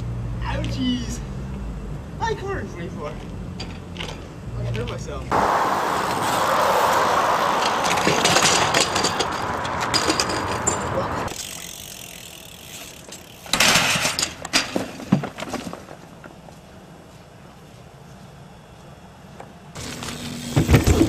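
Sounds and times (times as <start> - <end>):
steady outdoor rush: 0.0 - 13.6
bike crashing down concrete steps: 7.6 - 11.6, 12.8 - 16.0, 20.4 - 21.0.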